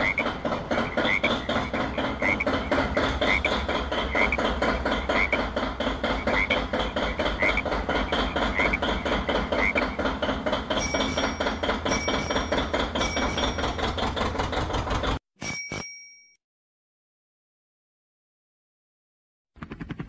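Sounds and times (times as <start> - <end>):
tractor engine chugging: 0.0 - 15.8.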